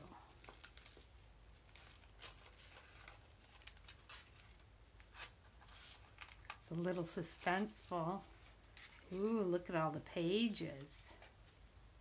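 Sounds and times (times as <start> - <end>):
paper rustling and clicking: 0.3 - 9.2.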